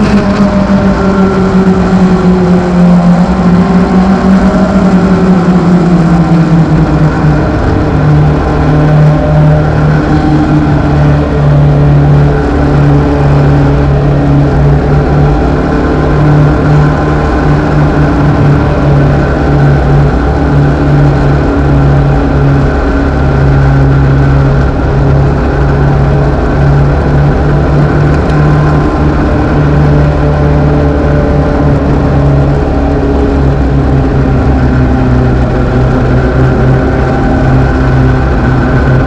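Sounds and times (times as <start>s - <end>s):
race car engine running hard: 0.0s - 39.0s.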